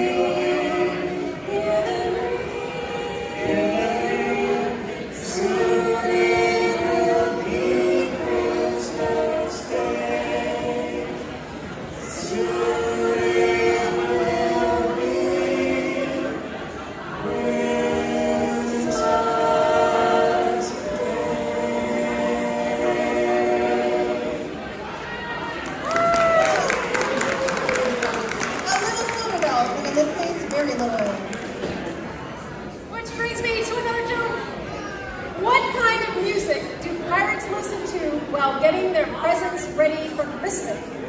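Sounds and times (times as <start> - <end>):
choir singing a cappella: 0.0 - 25.0.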